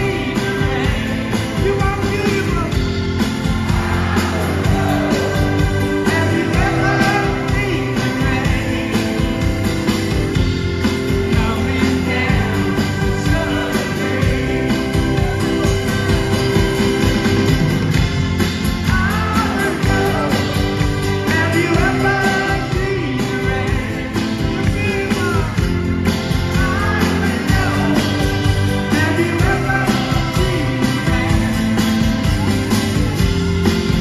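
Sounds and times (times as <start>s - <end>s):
lead singer singing: 0.0s - 2.8s, 3.7s - 9.7s, 11.1s - 16.1s, 18.8s - 25.8s, 26.4s - 31.7s
live rock band playing: 0.0s - 34.0s.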